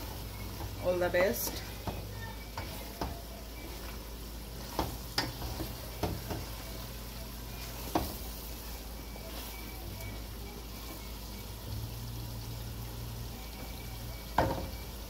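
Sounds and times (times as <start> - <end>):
wooden spatula scraping a pot: 0.0 - 11.2
gravy sizzling: 0.0 - 15.0.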